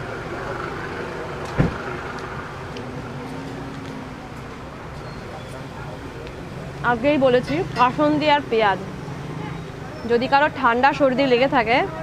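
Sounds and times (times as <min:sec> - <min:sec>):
street traffic: 0:00.0 - 0:12.0
sharp thump: 0:01.5 - 0:01.8.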